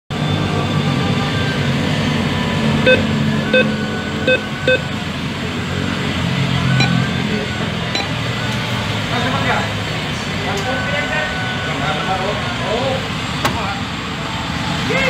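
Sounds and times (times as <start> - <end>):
keypad beeping: 2.9 - 4.9, 6.8 - 7.0, 8.0 - 8.2.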